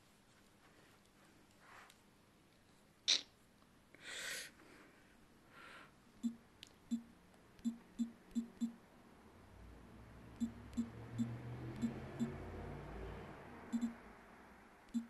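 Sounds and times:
fingers tapping on phone: 0:06.2 - 0:08.8, 0:10.4 - 0:12.4, 0:13.7 - 0:14.0.

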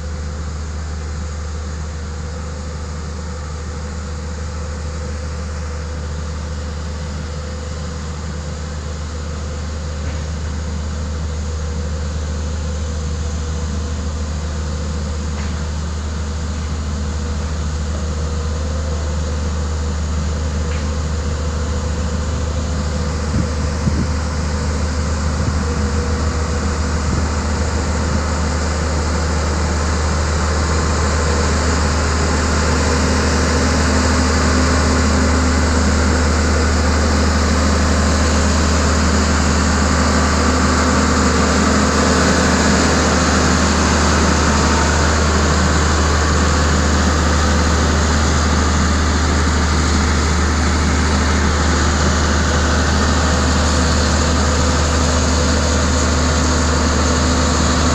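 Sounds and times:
road roller diesel engine: 0:00.0 - 0:57.9.

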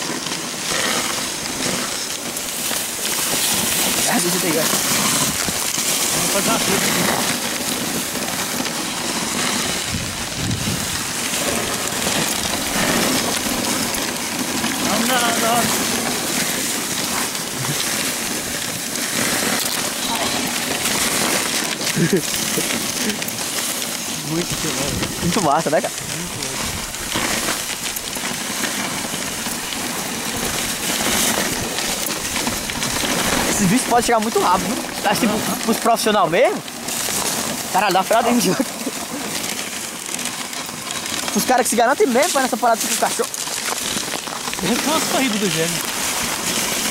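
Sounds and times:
sled runners scraping on snow: 0:00.0 - 0:46.9.

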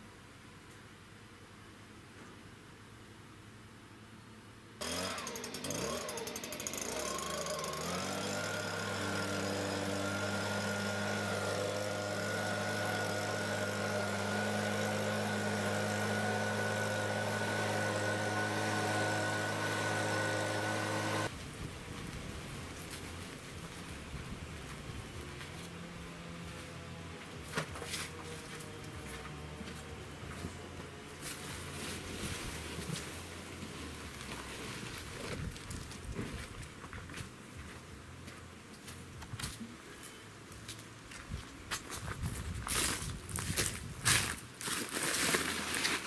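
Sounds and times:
leaf blower running: 0:04.8 - 0:21.3, 0:25.2 - 0:35.7.

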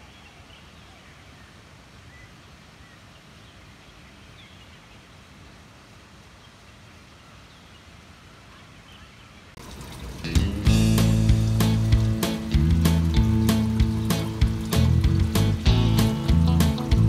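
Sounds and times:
steady outdoor hiss: 0:00.0 - 0:17.0
faint bird chirps: 0:06.3 - 0:09.6.

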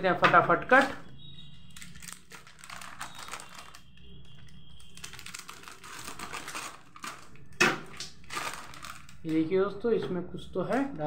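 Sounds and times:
packet crinkling: 0:00.7 - 0:09.5
scissors cutting plastic packet: 0:01.7 - 0:09.4.

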